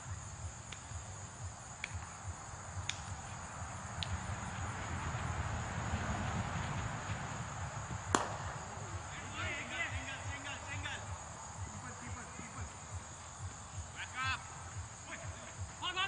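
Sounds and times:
wind rumble on microphone: 0.0 - 9.4
insects chorus: 0.0 - 16.0
faint ticks: 0.6 - 2.2, 2.8 - 3.4, 4.0 - 4.2.

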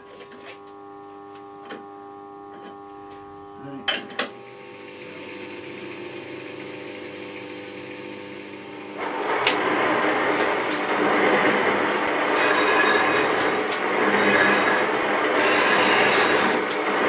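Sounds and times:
metal shaper running: 3.6 - 17.0.

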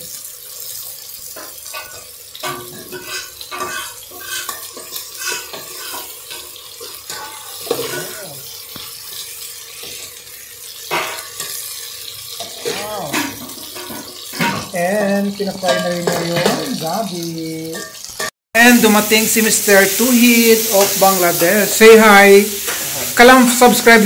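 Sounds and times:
food sizzling in oil: 0.0 - 24.0
metal spoon scraping pot: 1.8 - 6.4.

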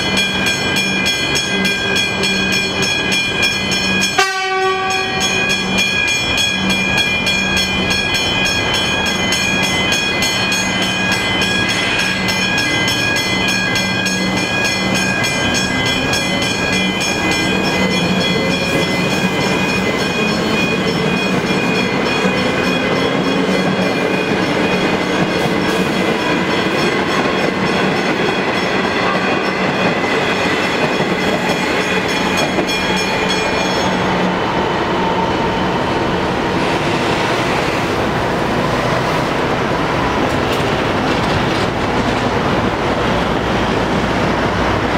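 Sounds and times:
level-crossing bells ringing: 0.0 - 35.0.

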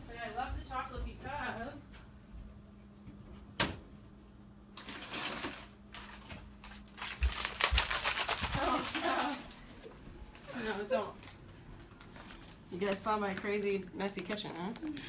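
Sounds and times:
plastic package rustling and crinkling: 4.8 - 15.0.

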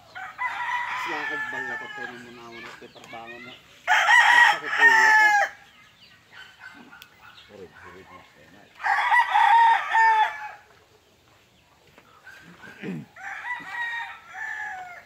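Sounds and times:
rooster crowing: 0.1 - 2.5, 3.9 - 5.6, 8.8 - 10.7, 12.6 - 15.0.

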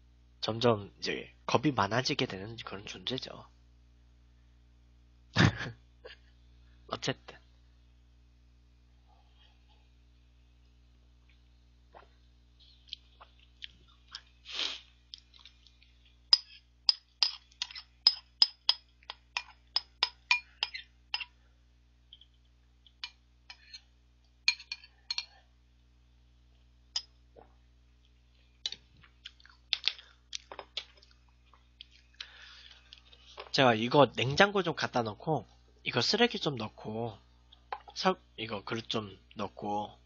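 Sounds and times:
spoon clinking in ceramic bowl: 16.3 - 21.3, 24.5 - 25.4.

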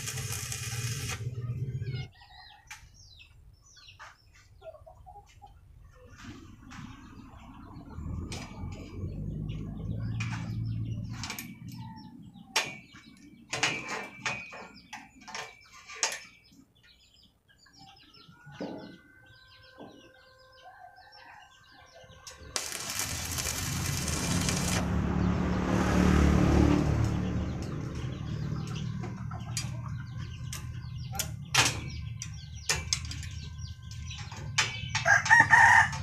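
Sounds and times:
arc welder crackling hiss: 0.0 - 1.3, 22.6 - 24.9
birds chirping: 8.7 - 26.0, 27.0 - 35.8.

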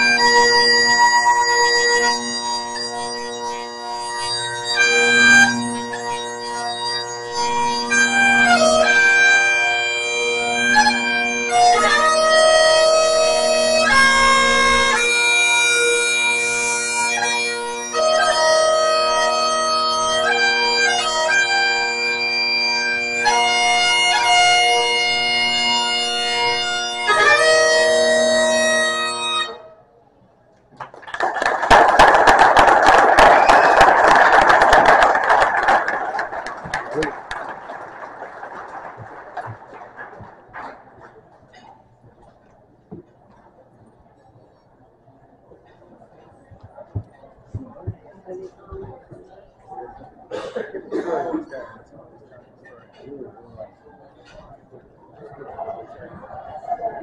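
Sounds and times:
bagpipe playing slow tune: 0.0 - 29.8.

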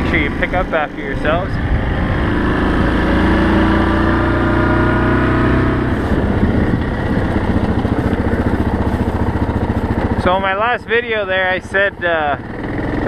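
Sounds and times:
atv engine running: 0.0 - 13.0.

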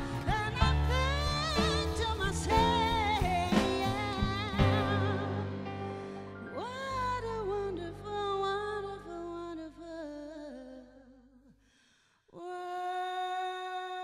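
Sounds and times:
held bass: 0.0 - 8.6
woman singing with vibrato: 0.0 - 11.3, 12.4 - 14.0.

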